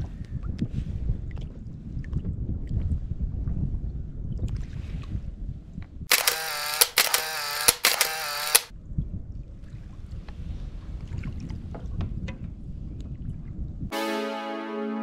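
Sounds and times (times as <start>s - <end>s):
wind: 0.0s - 13.9s
camera shutter click and whirr: 6.1s - 8.7s.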